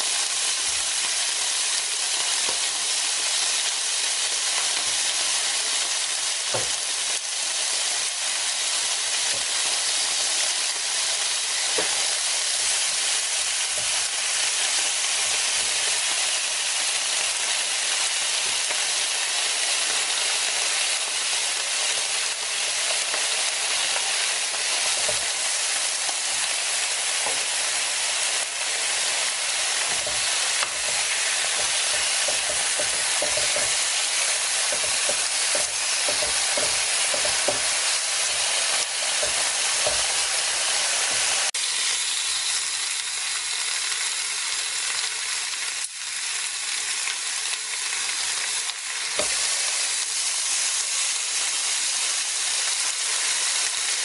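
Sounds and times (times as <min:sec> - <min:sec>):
meat sizzling on grill plate: 0:00.0 - 0:54.0.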